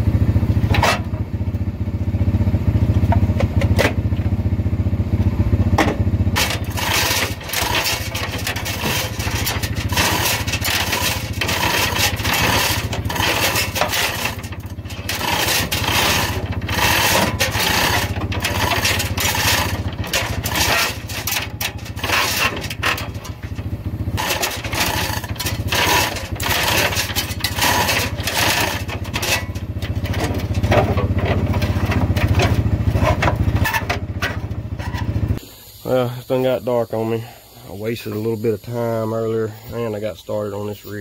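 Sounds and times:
small engine running: 0:00.0 - 0:36.5
metal scraping and clunks: 0:00.6 - 0:01.3, 0:02.9 - 0:04.2, 0:05.7 - 0:35.4.

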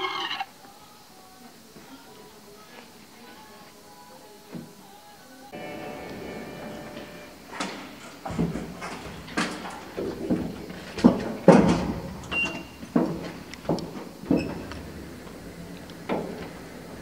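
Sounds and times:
elevator clunks and knocks: 0:06.2 - 0:17.0.

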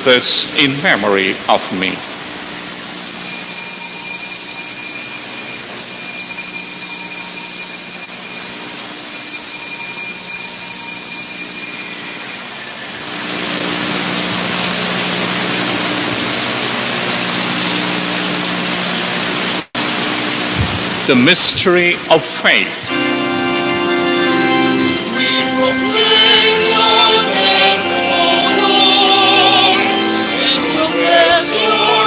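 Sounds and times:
altar bells ringing: 0:02.9 - 0:13.6, 0:22.8 - 0:32.0.

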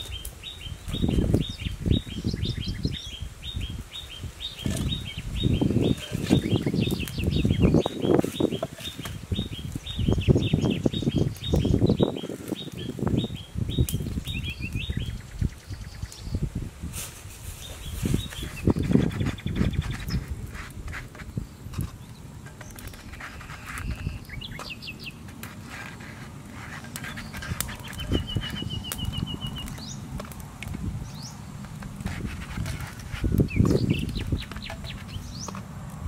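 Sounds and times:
birds chirping: 0:00.0 - 0:16.5, 0:17.5 - 0:35.7
bird trill: 0:27.0 - 0:30.0.

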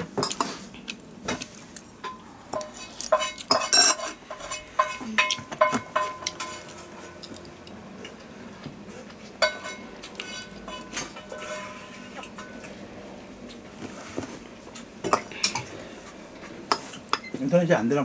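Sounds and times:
metal spoon clinking on glass bowl: 0:02.1 - 0:06.7, 0:09.4 - 0:12.7.

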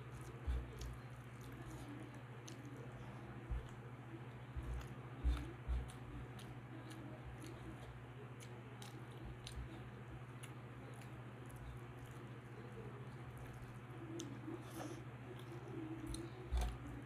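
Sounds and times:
chewing food: 0:00.0 - 0:17.0
fingers squishing rice on plate: 0:00.0 - 0:17.0
steady low hum: 0:00.0 - 0:17.0.

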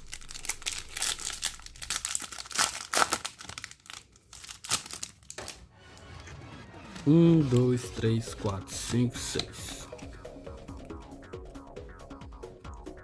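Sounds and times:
foil wrapper crinkling and tearing: 0:00.0 - 0:05.6.

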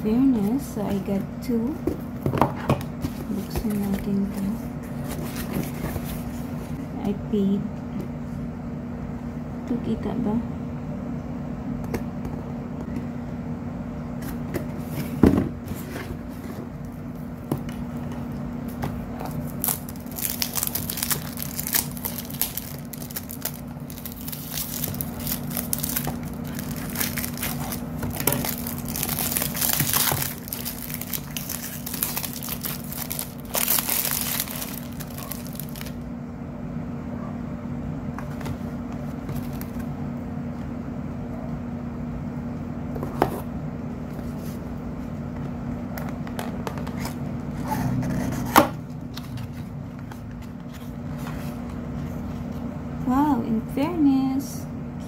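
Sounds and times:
steady low hum: 0:00.0 - 0:55.0
shrink-wrap crinkling and tearing: 0:19.2 - 0:36.0
scissors cutting plastic: 0:19.6 - 0:35.9.

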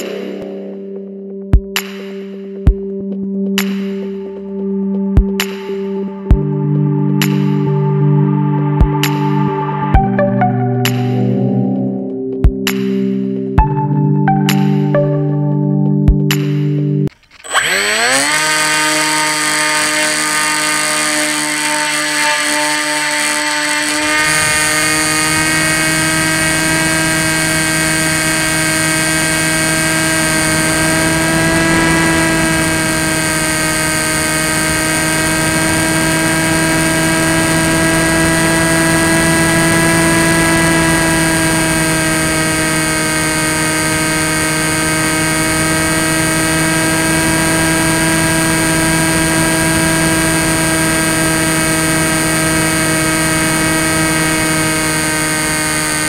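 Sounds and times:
electric motor and propeller whine: 0:17.2 - 0:56.0.

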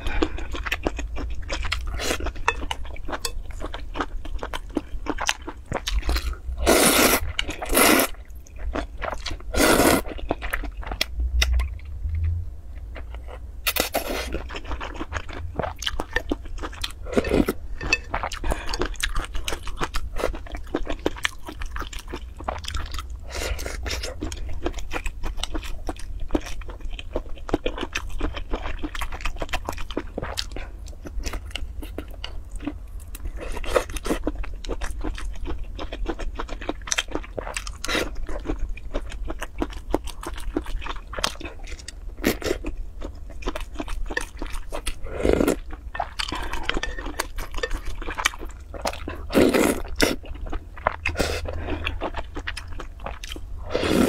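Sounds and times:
slurping noodles and broth: 0:06.6 - 0:08.1, 0:09.5 - 0:10.1, 0:53.6 - 0:54.0.

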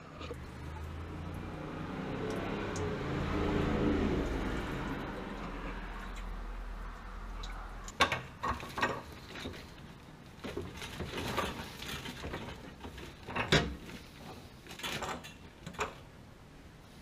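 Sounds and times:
tools scraping on pipes: 0:08.0 - 0:16.0.

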